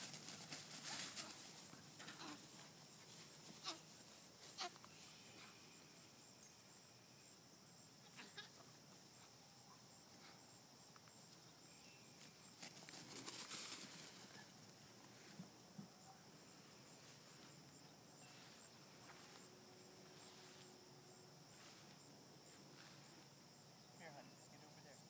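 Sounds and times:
rustling handling noise: 0.0s - 4.8s.

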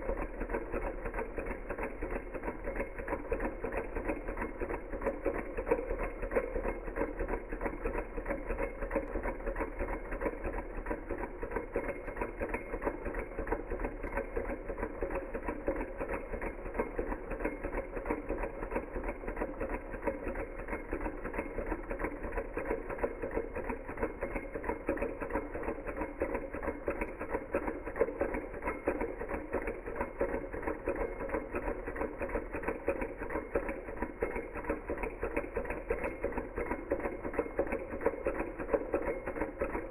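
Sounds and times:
engine mechanical clatter: 0.0s - 39.9s.

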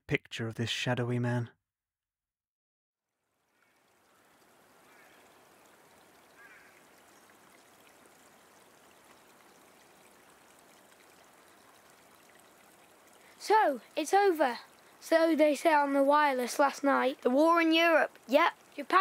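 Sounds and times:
faint rushing river water: 3.2s - 19.0s
brief bird calls: 6.2s - 7.2s.

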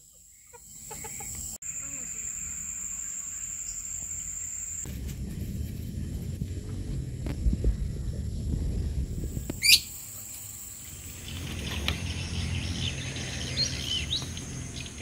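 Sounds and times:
low rumble: 4.8s - 9.6s
bird calls and chirps: 9.4s - 15.0s.

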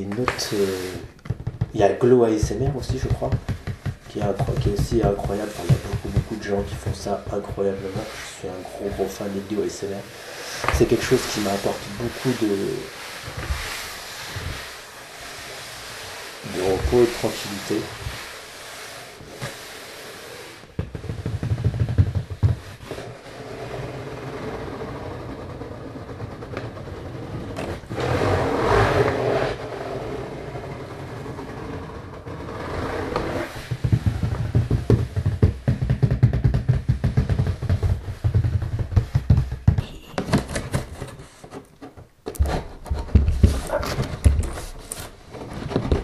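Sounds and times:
fingers tapping on cardboard: 0.0s - 9.1s, 20.6s - 23.1s, 33.0s - 45.0s
rubbing swish: 0.0s - 25.5s, 27.7s - 41.5s.

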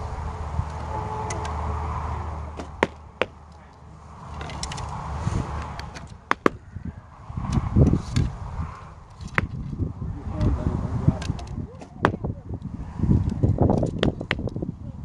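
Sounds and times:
low rumble: 0.0s - 13.8s
arrows striking targets: 2.5s - 6.6s, 9.1s - 9.8s, 11.1s - 12.3s.

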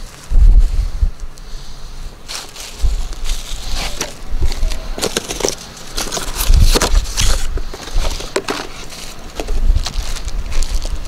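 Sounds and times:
packaging rustling and crinkling: 2.3s - 11.0s.

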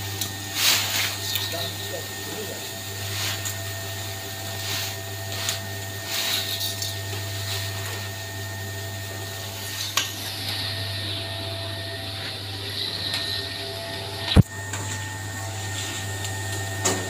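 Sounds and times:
feed mixer motor hum: 0.0s - 17.0s
feed rustling and pouring: 0.5s - 8.2s.

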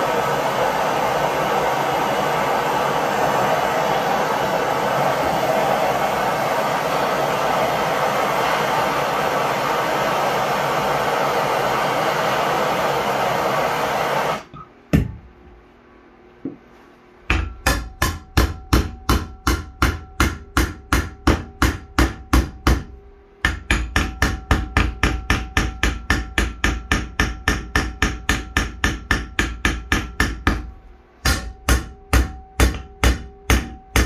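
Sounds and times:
hammer striking steel rod: 17.3s - 34.0s.

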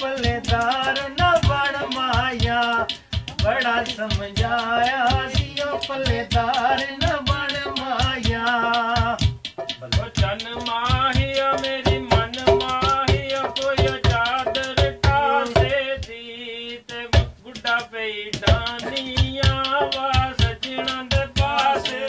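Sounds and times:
hand drumming on metal pots: 0.0s - 16.1s, 16.9s - 22.0s
man singing: 0.0s - 22.0s.

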